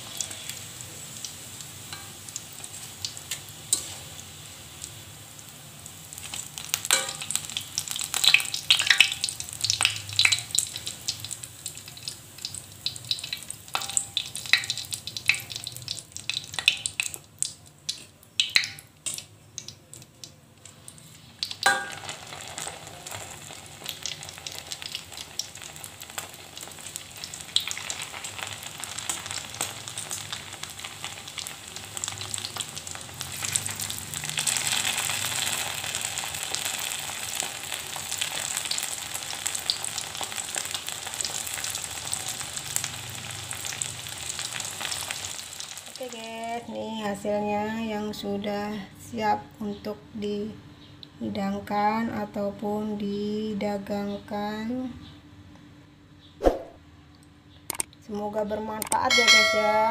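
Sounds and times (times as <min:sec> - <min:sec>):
hot oil crackling and popping: 0:00.0 - 0:46.6
dense oil sizzle: 0:00.0 - 0:48.3.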